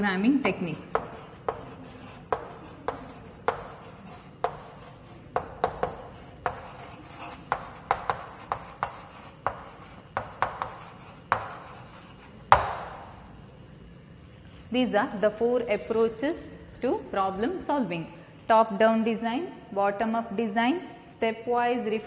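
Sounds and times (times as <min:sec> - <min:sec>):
chalk writing on a blackboard: 0:00.0 - 0:13.1
knock on blackboard: 0:00.9 - 0:04.8, 0:05.4 - 0:11.7, 0:12.5 - 0:13.0.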